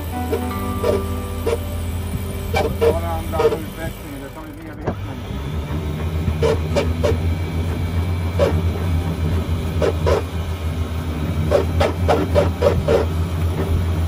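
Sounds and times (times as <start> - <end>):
steady low drone: 0.0 - 14.0.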